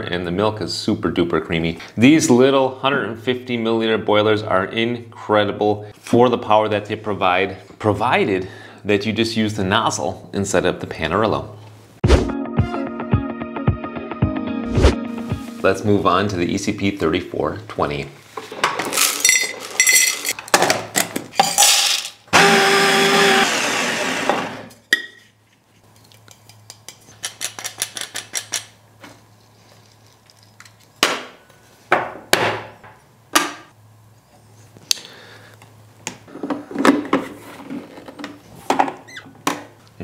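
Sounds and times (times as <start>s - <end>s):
burr grinder running: 22.3s - 24.8s.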